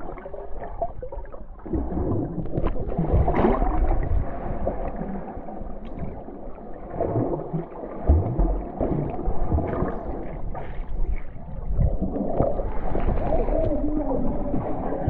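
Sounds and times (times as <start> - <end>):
underwater gurgling and sloshing: 0.0 - 15.0
low underwater thumps: 1.6 - 5.0, 7.0 - 15.0.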